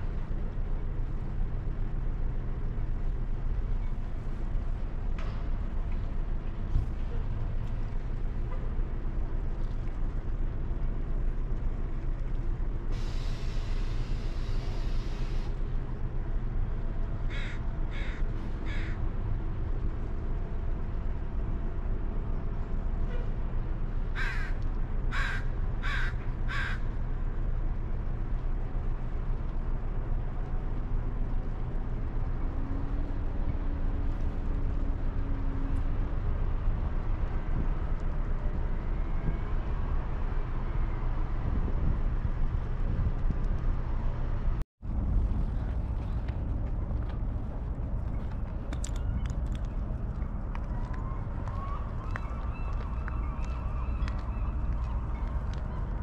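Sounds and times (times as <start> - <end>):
low outdoor rumble: 0.0 - 56.0
bird calling: 50.8 - 55.9.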